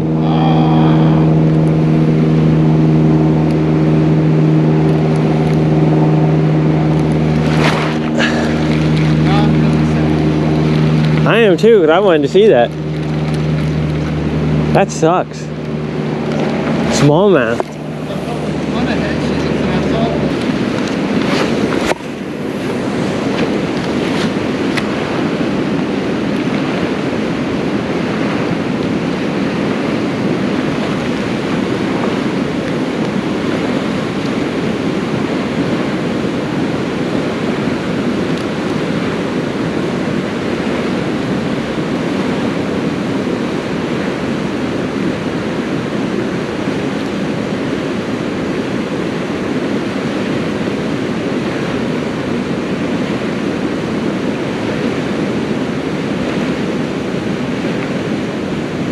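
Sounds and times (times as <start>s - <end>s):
flowing creek water: 0.0s - 58.9s.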